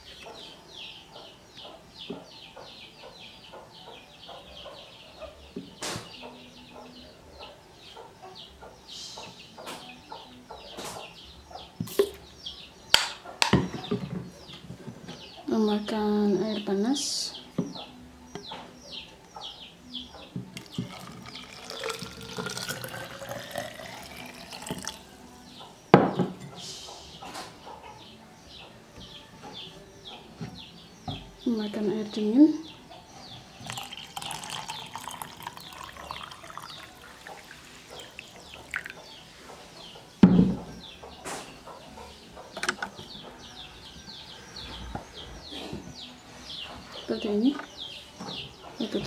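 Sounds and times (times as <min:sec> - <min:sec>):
chickens clucking: 0:00.0 - 0:15.5, 0:16.5 - 0:49.0
chickens chirping: 0:00.0 - 0:49.0
water pouring into plastic bottle: 0:20.7 - 0:25.0, 0:33.6 - 0:39.0.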